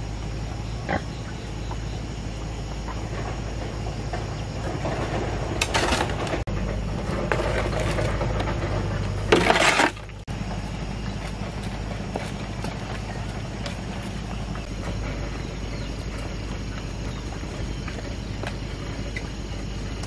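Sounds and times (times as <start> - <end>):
steady low hum: 0.0 - 20.0
shovel scraping metal wheelbarrow: 4.1 - 17.2.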